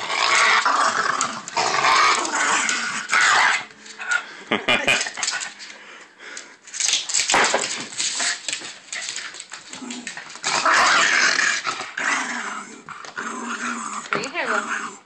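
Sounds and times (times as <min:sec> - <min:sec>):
dog growling playfully: 0:00.0 - 0:05.5, 0:09.7 - 0:15.0.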